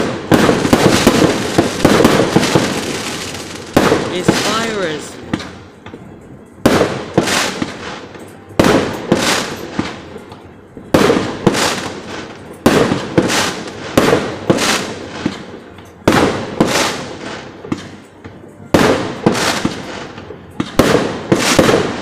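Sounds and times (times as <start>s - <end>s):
firework shells bursting: 0.0s - 6.0s.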